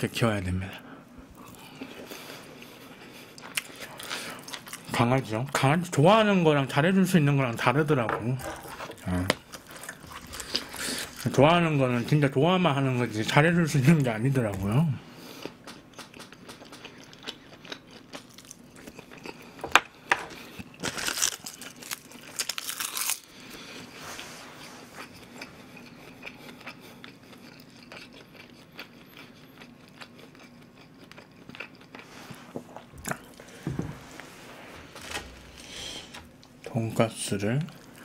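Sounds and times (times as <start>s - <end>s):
man chewing: 1.2s - 4.9s, 8.4s - 11.3s, 15.1s - 36.7s
loud crunching bites: 20.8s - 23.3s.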